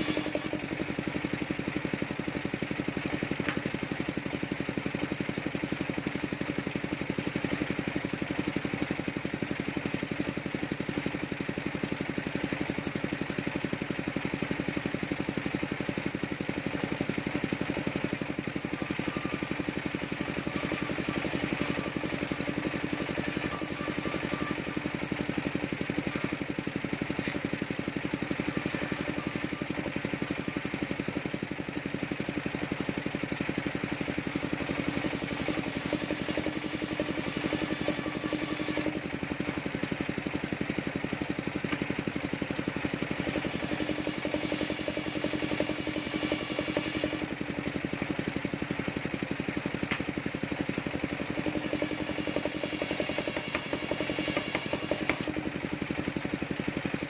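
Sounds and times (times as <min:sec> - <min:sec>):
table saw cutting wood: 0:00.0 - 0:00.9, 0:18.3 - 0:25.2, 0:25.9 - 0:26.4, 0:28.1 - 0:31.0, 0:33.7 - 0:39.7, 0:42.6 - 0:47.3, 0:50.7 - 0:55.5
saw engine running: 0:00.0 - 0:57.0.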